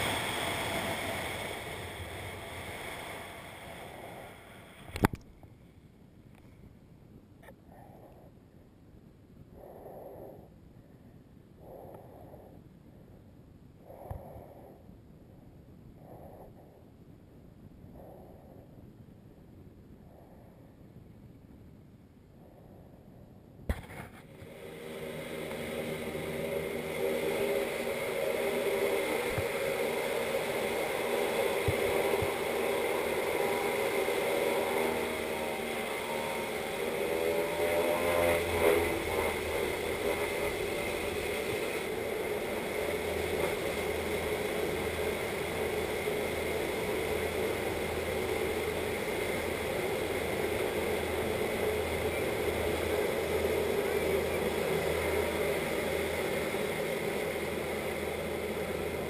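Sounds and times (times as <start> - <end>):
propeller engine running hard: 0.0 - 5.0, 23.8 - 59.0.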